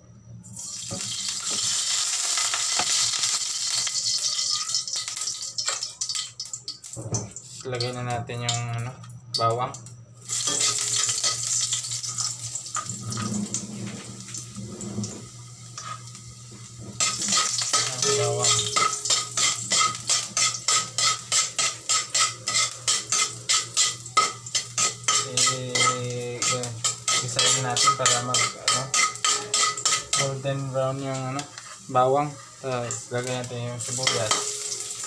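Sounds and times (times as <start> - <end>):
garlic sizzling in hot oil: 0.5 - 7.6, 10.2 - 35.0
metal spatula scraping and tapping pan: 3.7 - 6.4, 15.8 - 16.2, 16.9 - 30.6, 31.4 - 32.4, 33.2 - 35.0.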